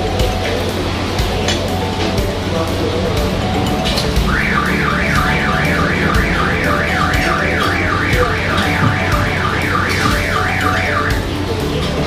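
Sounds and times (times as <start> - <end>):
electronic alarm siren warbling: 3.6 - 11.4.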